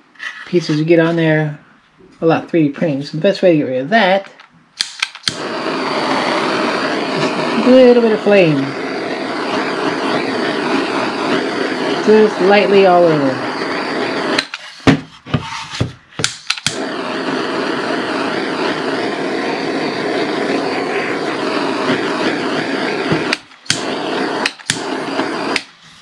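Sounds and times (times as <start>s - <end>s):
torch igniter clicks: 4.8s - 7.6s, 13.5s - 14.7s, 16.2s - 19.0s, 21.2s - 25.8s
gas torch hissing: 4.8s - 26.0s.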